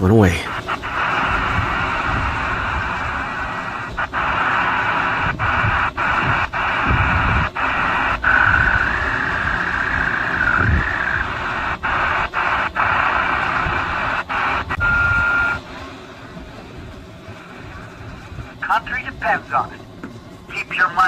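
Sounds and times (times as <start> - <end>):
radio static hiss: 0.0 - 15.8, 17.3 - 19.9, 20.5 - 21.0
high wavering radio whistle: 0.4 - 15.8.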